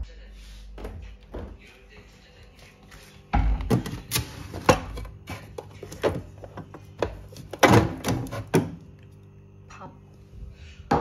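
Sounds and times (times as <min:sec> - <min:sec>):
frozen food containers knocking: 0:03.4 - 0:08.8
plastic freezer drawer opening: 0:03.6 - 0:08.8.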